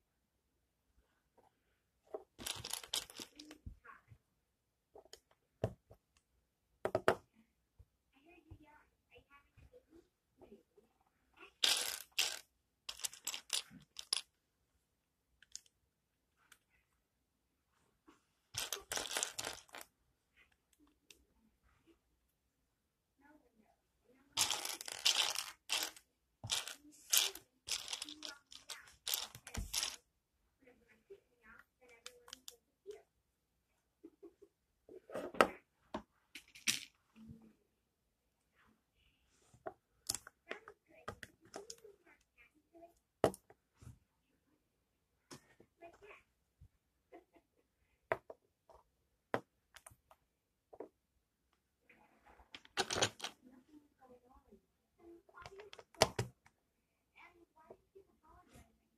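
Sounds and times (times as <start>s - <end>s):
plastic bricks clicking: 2.4s - 3.5s, 11.6s - 14.3s, 18.6s - 19.8s, 24.4s - 30.0s, 52.6s - 53.4s.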